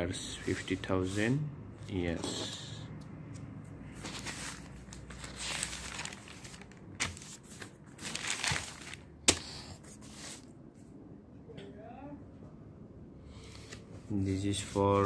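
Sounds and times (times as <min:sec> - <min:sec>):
newspaper pages rustling: 0:03.9 - 0:10.5, 0:13.4 - 0:15.0.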